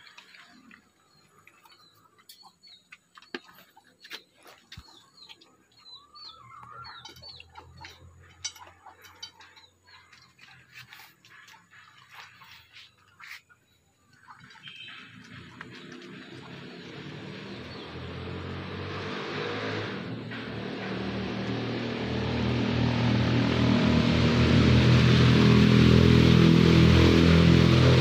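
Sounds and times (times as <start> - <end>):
faint birds chirping: 0.0 - 18.8.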